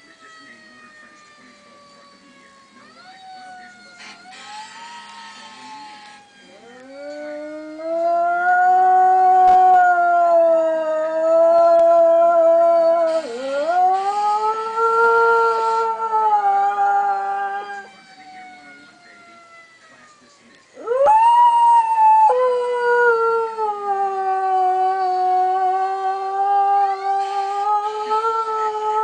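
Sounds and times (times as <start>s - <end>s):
dog howling: 2.8s - 20.0s, 20.8s - 29.0s.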